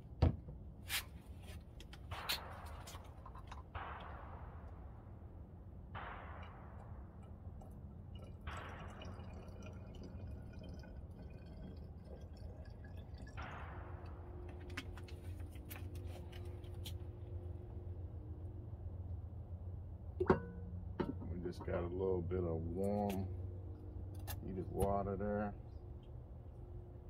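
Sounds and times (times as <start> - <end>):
steady low rumble: 0.0 - 27.0
liquid pouring into bottle: 7.6 - 16.0.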